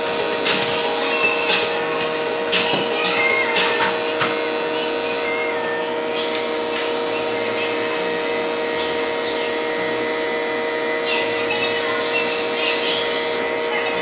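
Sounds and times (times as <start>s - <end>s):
electric hair trimmer buzzing: 0.0s - 14.0s.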